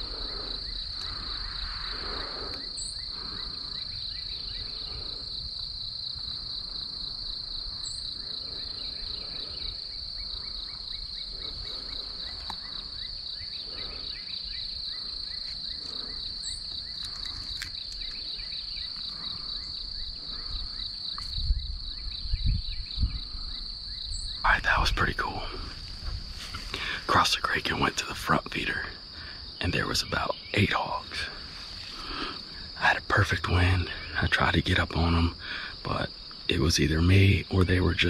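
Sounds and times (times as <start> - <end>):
wind rumble on microphone: 0.0 - 27.1
insects trilling: 0.0 - 38.0.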